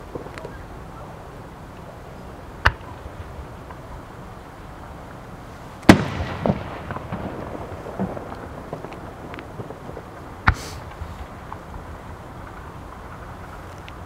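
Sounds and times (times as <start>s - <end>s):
firework crack: 0.0s - 14.0s
firework shell bang: 5.9s - 9.4s
rumbling echo: 5.9s - 14.0s.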